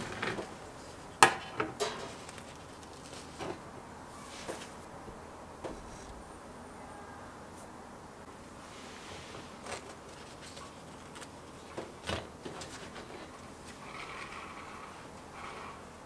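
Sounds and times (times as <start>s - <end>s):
bread crust crackling: 2.0s - 3.4s.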